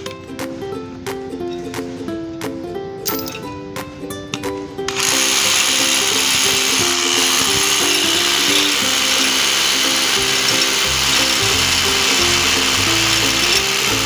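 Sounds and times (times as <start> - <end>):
background music: 0.0 - 14.0
power tool hissing: 4.9 - 14.0.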